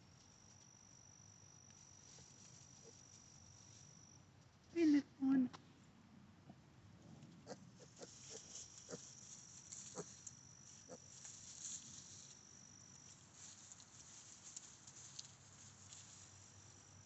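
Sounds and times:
high insect trill: 0.0 - 4.4, 7.5 - 17.0
rustling of straw bedding: 7.8 - 17.0.

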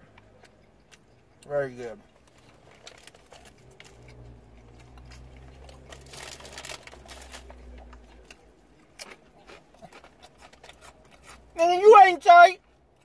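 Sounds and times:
man chewing: 0.0 - 11.6
paper wrapper crinkling: 5.7 - 7.5.

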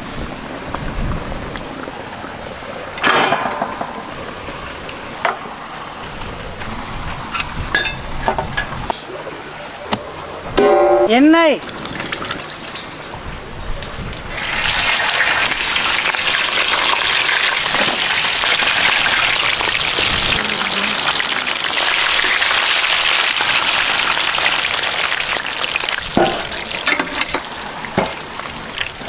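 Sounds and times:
food sizzling: 14.3 - 29.0.

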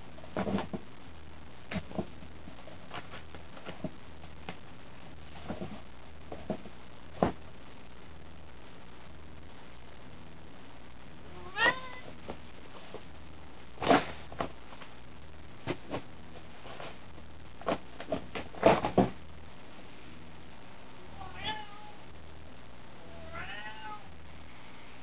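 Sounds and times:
cat meowing: 11.3 - 12.1, 21.2 - 22.0, 23.1 - 24.1.

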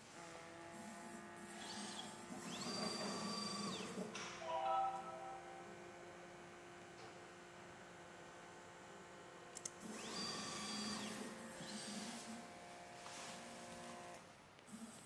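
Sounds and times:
faint steady motor hum: 4.9 - 15.0.

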